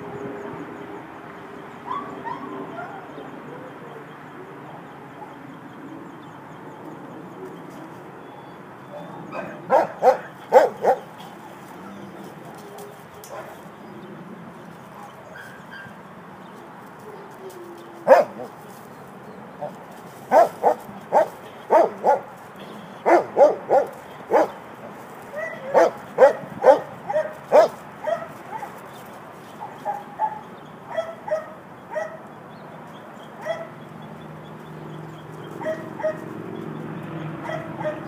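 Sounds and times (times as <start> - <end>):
dog barking: 9.0 - 11.0, 18.1 - 18.5, 20.3 - 22.3, 23.0 - 24.6, 25.4 - 28.7, 29.8 - 32.2, 33.4 - 33.7, 35.6 - 36.2, 37.4 - 38.0.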